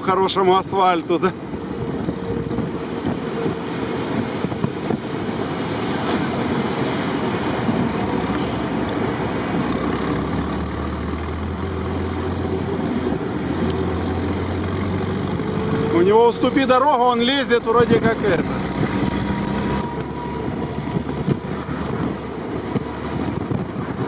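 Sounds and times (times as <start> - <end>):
jeep engine drone: 0.0 - 24.0
road noise: 0.0 - 24.0.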